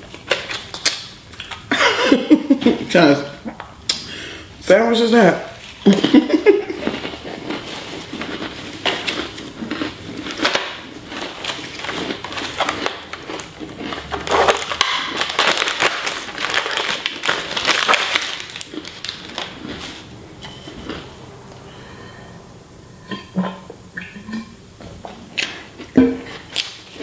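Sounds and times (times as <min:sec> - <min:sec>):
crunchy crackers being chewed: 0:05.6 - 0:20.1, 0:25.3 - 0:27.0
plastic wrapper crinkling: 0:10.2 - 0:20.1.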